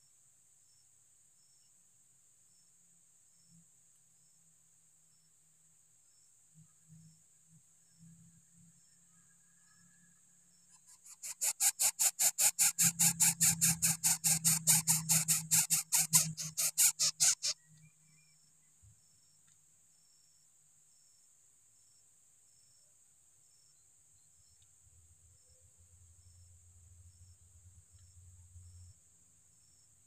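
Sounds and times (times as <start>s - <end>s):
nestlings begging pulsed hissing: 10.8s - 17.6s.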